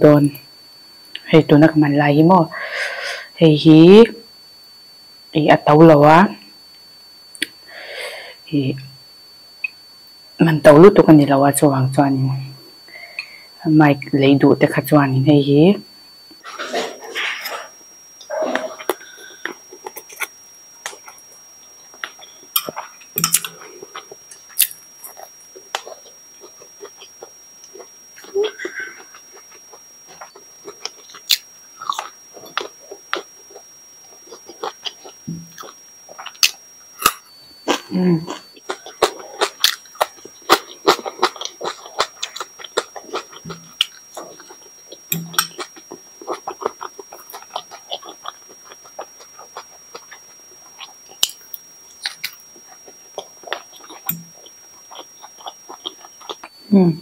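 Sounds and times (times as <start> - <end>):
faint high-pitched whine: 0.0 - 57.0
close chewing and mouth sounds: 16.6 - 56.6
metal fork clicking on glass bowl: 22.6 - 23.5
slurping and chewing noodles: 37.7 - 51.4, 52.0 - 56.6.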